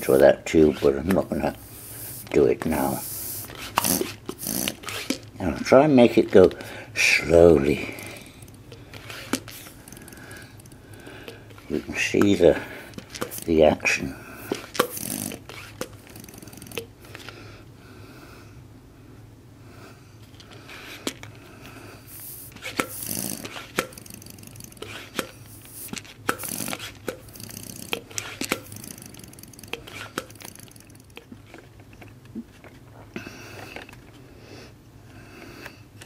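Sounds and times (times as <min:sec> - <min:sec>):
steady low hum: 0:00.0 - 0:36.0
air hisses: 0:01.5 - 0:04.7.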